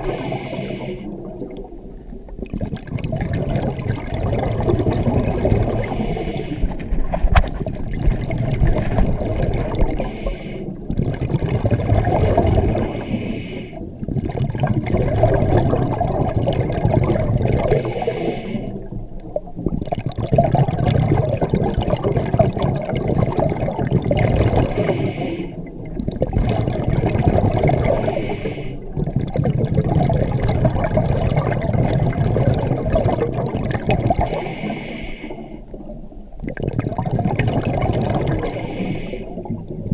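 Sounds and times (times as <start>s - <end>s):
regulator inhale hiss: 0.0s - 1.2s, 5.8s - 6.9s, 9.9s - 10.8s, 12.8s - 13.9s, 17.7s - 18.9s, 24.7s - 25.7s, 27.9s - 29.0s, 34.2s - 35.8s, 38.4s - 39.5s
underwater exhaled bubbles gurgling: 0.0s - 39.9s.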